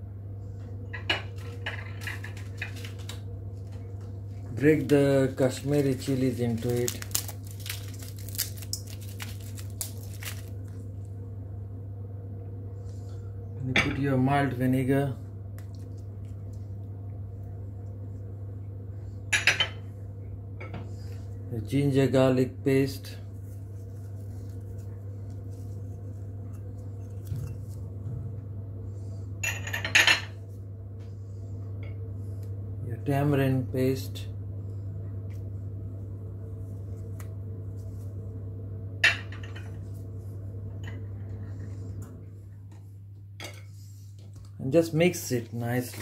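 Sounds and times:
steady low hum: 0.0 - 46.0
dried chilies crackling: 4.6 - 10.8.

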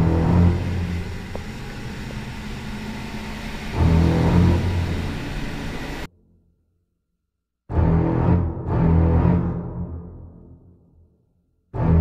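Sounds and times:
boat engines running: 0.0 - 6.1.

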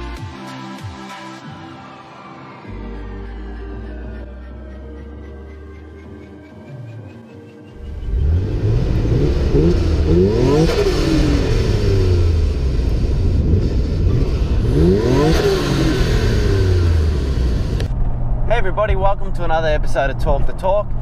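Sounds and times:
car engine revving: 4.5 - 18.5.

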